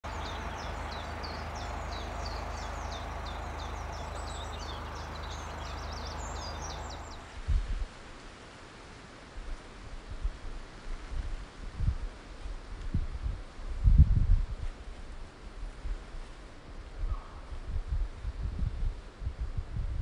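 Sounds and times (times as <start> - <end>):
songbirds chirping: 0.0 - 7.3
low rumble: 0.0 - 7.7
wind buffeting microphone: 0.0 - 8.0, 9.4 - 20.0.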